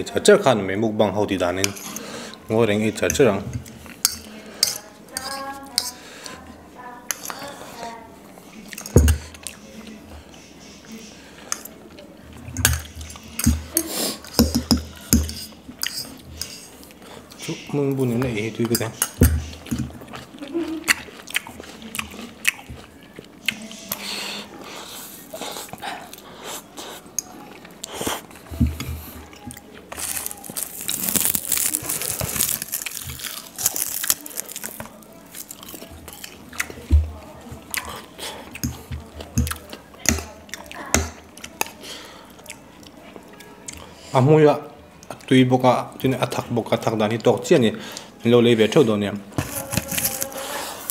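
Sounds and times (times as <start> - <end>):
cutlery clinking on ceramic bowls: 3.0 - 6.0, 14.3 - 16.7
chewing and biting noodles: 19.5 - 36.7
loud crunching and crinkling: 29.0 - 36.8, 49.4 - 50.9.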